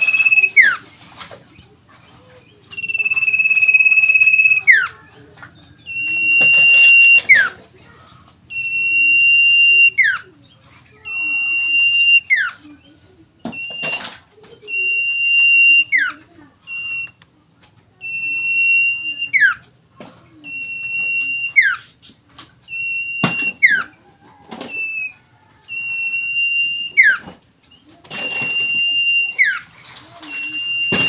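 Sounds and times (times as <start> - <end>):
bird singing high whistle: 0.0 - 0.8, 2.7 - 4.9.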